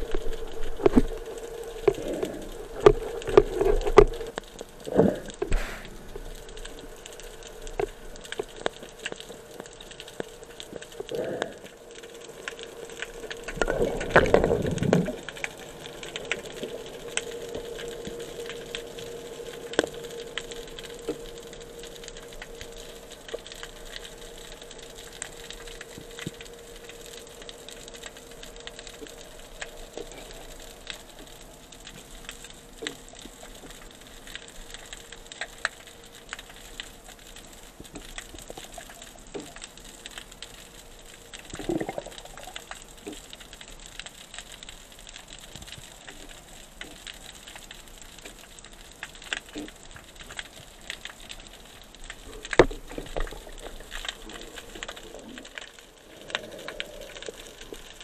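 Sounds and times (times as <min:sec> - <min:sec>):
underwater clicks crackling: 0:00.0 - 0:58.0
underwater hum: 0:00.0 - 0:58.0.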